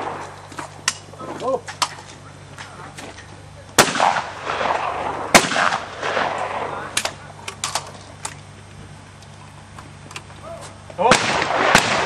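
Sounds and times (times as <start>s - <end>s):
shotgun shots with echo: 3.8s - 7.0s, 11.1s - 12.0s.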